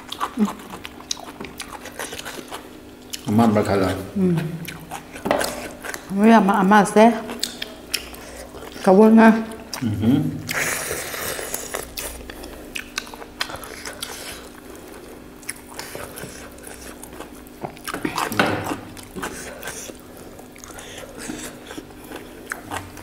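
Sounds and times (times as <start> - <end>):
wet mouth sounds: 0.0 - 3.3, 7.3 - 8.9, 9.5 - 14.6
chewing and biting meat: 0.0 - 6.1, 7.2 - 8.9, 9.5 - 23.0.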